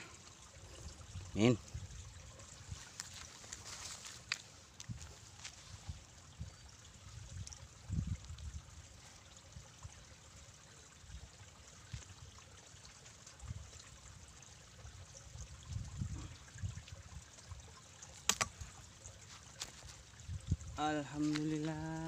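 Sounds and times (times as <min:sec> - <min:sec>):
water trickling and dripping: 0:00.0 - 0:22.0
sharp click: 0:18.3 - 0:18.5.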